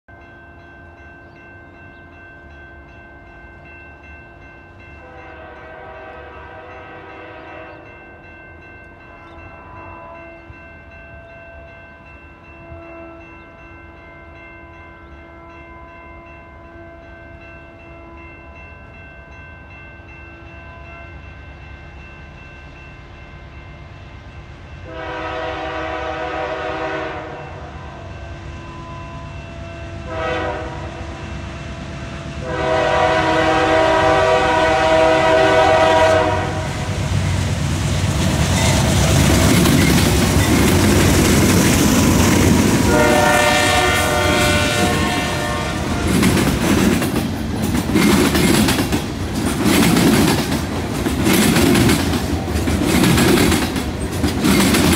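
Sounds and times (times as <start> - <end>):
low train rumble: 0.1 - 54.9
distant train air horn: 5.0 - 8.0, 9.1 - 10.6, 12.6 - 13.6, 24.8 - 31.4, 32.2 - 37.1, 42.8 - 46.5.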